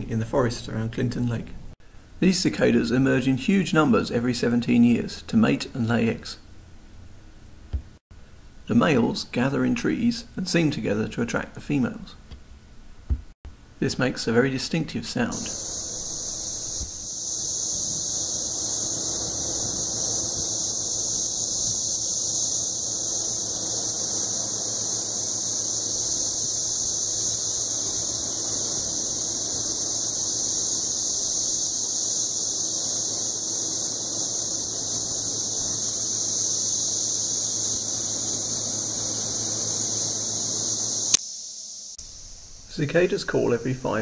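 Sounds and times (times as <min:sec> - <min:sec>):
cicadas shrill buzzing chorus: 0:14.7 - 0:44.0.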